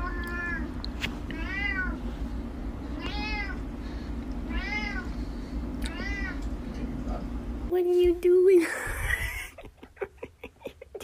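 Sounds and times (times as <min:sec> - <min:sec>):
steady low hum: 0:00.0 - 0:11.0
cat meowing: 0:01.3 - 0:02.0, 0:03.0 - 0:03.6, 0:04.5 - 0:05.1, 0:05.8 - 0:06.4.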